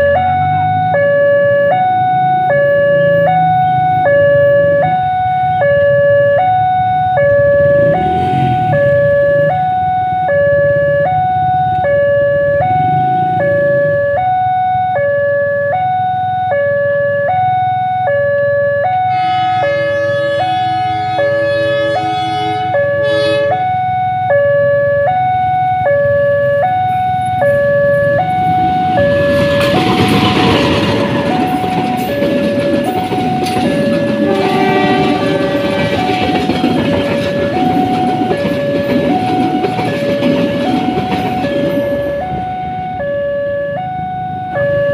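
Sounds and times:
diesel train rumble: 0:00.0 - 0:15.0, 0:19.0 - 0:44.9
level crossing two-tone alarm: 0:00.0 - 0:44.9
locomotive horn: 0:18.9 - 0:23.9, 0:28.4 - 0:32.6, 0:33.4 - 0:38.8.

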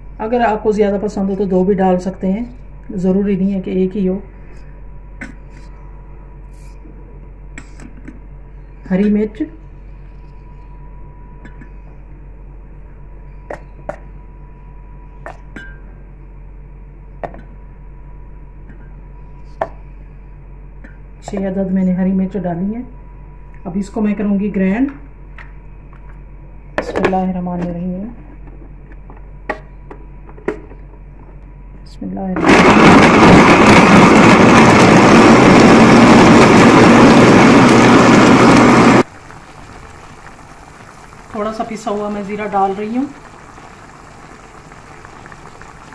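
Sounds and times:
low hum: 0:00.0 - 0:45.9
mixer grinder motor whirring: 0:32.4 - 0:39.1.

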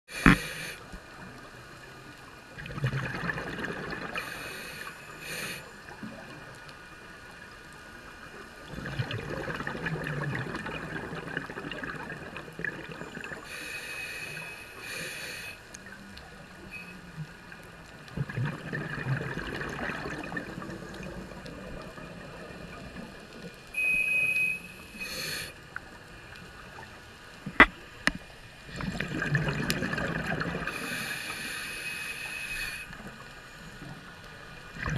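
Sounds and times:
scuba regulator breathing: 0:00.1 - 0:00.9, 0:04.1 - 0:05.7, 0:13.4 - 0:15.7, 0:23.8 - 0:25.6, 0:30.7 - 0:33.0
bubbles gurgling underwater: 0:02.6 - 0:04.2, 0:08.6 - 0:13.4, 0:18.0 - 0:23.4, 0:28.7 - 0:30.8.

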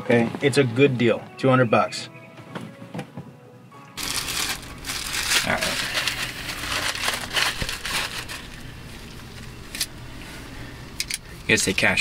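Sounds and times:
plastic bag crinkling: 0:04.0 - 0:09.5.

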